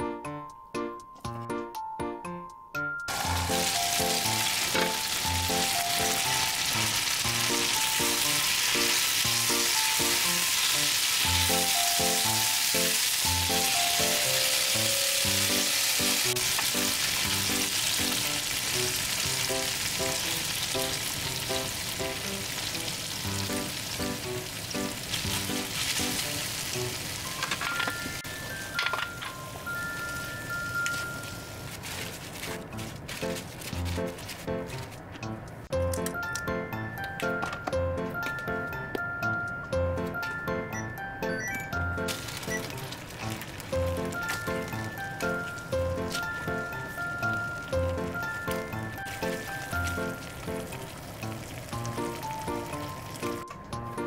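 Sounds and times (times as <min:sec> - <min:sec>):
light background music: 0:00.0 - 0:54.0
food sizzling in a frying pan: 0:03.1 - 0:28.8.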